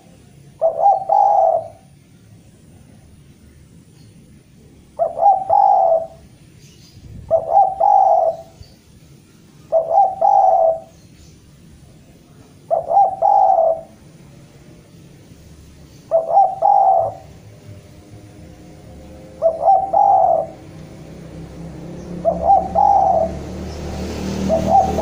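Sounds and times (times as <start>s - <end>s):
dove cooing: 0.0s - 2.0s, 5.0s - 6.2s, 7.2s - 8.6s, 9.6s - 11.0s, 12.6s - 14.1s, 16.0s - 17.5s, 18.8s - 21.1s, 22.0s - 23.6s, 24.4s - 25.0s.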